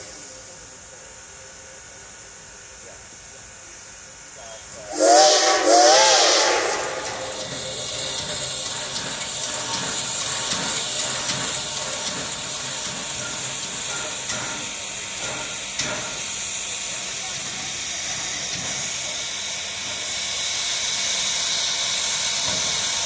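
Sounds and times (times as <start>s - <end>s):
steady hiss of steam: 0.0s - 23.0s
steam whistle blast: 4.9s - 8.5s.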